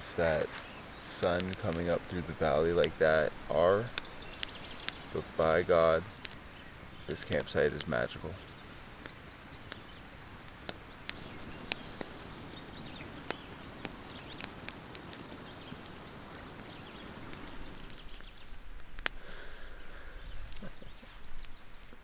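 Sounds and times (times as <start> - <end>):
soft steady hiss: 0.0 - 22.0
sharp clicks and ticks: 1.2 - 8.4, 9.0 - 16.4.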